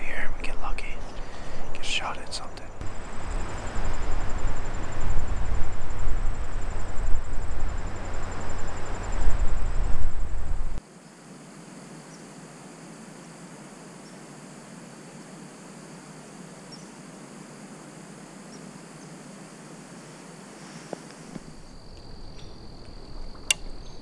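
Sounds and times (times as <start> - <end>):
faint outdoor hiss: 0.0 - 24.0
loud low rumbling on microphone: 2.6 - 10.8
faint high ticks: 21.4 - 23.9.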